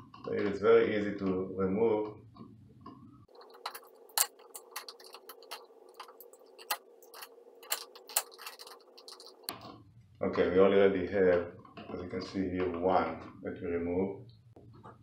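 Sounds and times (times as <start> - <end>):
knife scraping wire insulation: 3.3 - 9.7.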